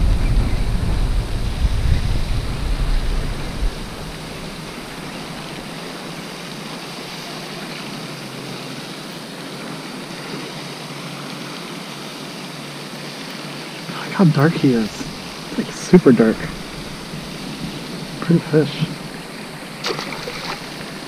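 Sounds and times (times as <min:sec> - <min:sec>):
wind hiss on microphone: 0:00.0 - 0:21.0.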